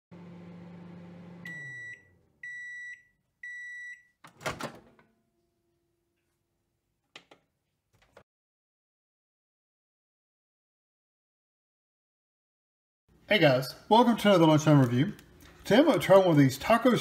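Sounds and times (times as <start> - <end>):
microwave oven humming: 0.1 - 3.7
microwave timer beeps: 1.3 - 4.2.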